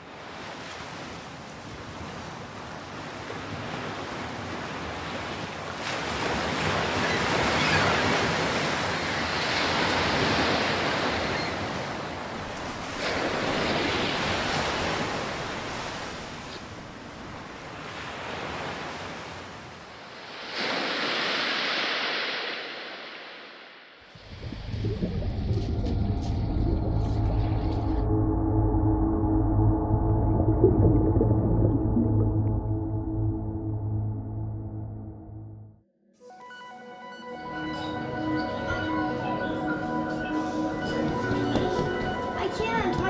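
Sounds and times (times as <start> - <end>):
wind: 0.0 - 28.1
sea surf breaking: 3.4 - 26.7.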